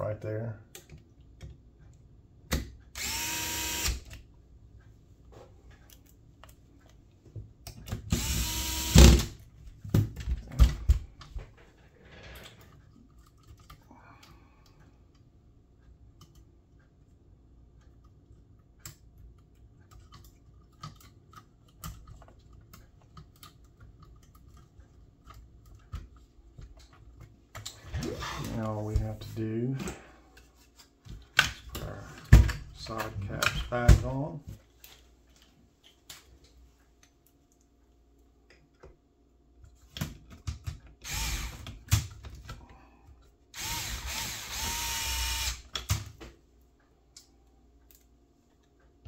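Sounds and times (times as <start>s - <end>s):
cordless screwdriver running: 3.0s - 4.1s, 8.1s - 9.3s, 41.0s - 41.6s, 43.6s - 45.6s
light clicks and knocks of parts: 4.2s - 8.0s, 9.5s - 41.0s, 45.7s - 49.0s.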